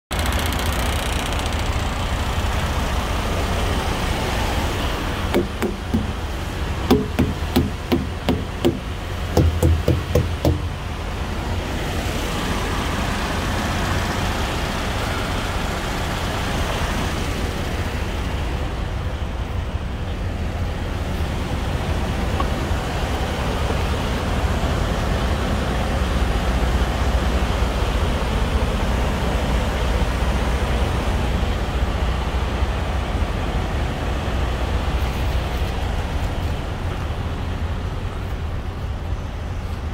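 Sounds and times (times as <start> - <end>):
engine and road rumble: 0.0 - 39.9
wooden thumper knocking tires: 5.3 - 10.8.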